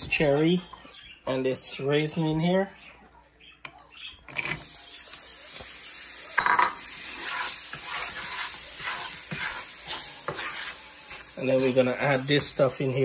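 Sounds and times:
steady sizzle: 4.3s - 13.0s
wooden spoon scraping a pan: 6.4s - 13.0s.

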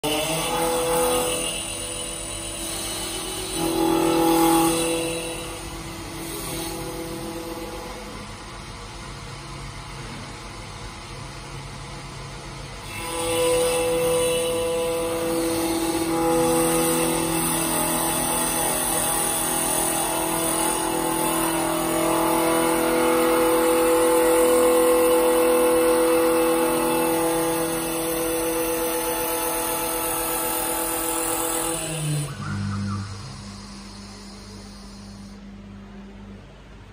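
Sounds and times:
lathe motor whine: 0.0s - 9.9s, 11.6s - 36.8s
hiss of cutter shaving wood: 12.9s - 35.4s.

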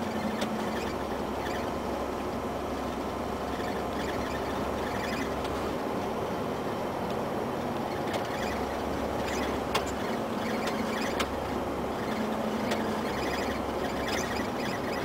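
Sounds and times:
road noise: 0.0s - 15.0s
truck diesel engine: 0.0s - 15.0s
sharp clicks in cab: 0.2s - 0.8s, 7.0s - 11.5s, 12.6s - 13.0s.

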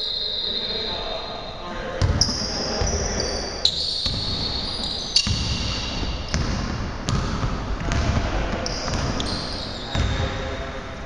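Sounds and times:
sneaker squeaks: 0.0s - 10.6s
basketball bouncing on wooden floor: 5.2s - 9.3s.

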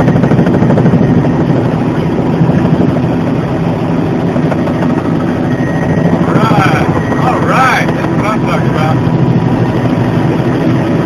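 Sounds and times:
helicopter rotor blades beating: 0.0s - 11.0s
turbine engine drone: 0.0s - 11.0s.

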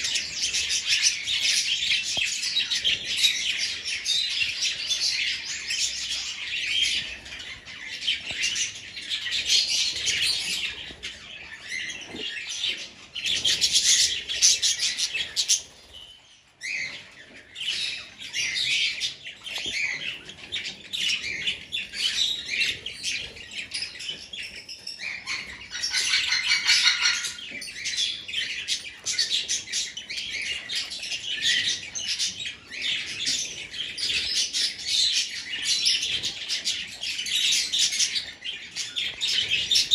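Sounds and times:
budgerigars chattering: 16.6s - 39.9s.

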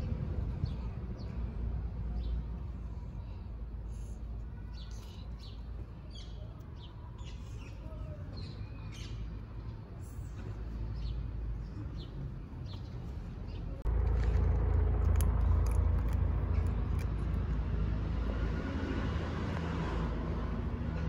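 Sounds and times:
street traffic rumble: 0.0s - 21.0s
cat crunching dry kibble: 13.9s - 17.7s.

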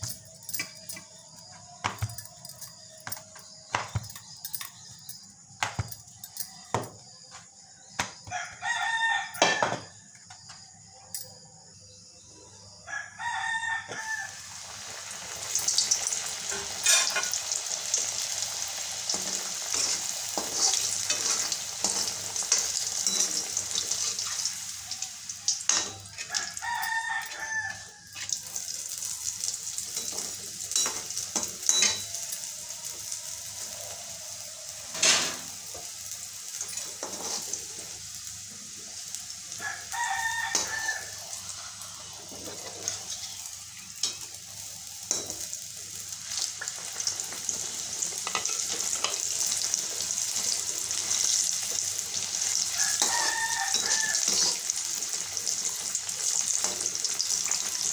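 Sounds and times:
oil sizzling: 0.0s - 8.4s, 13.9s - 57.9s
metal spoon scraping a pan: 16.4s - 17.5s, 19.1s - 24.6s, 29.9s - 32.4s, 36.6s - 37.6s, 42.2s - 44.4s, 47.6s - 49.3s, 50.1s - 54.8s.

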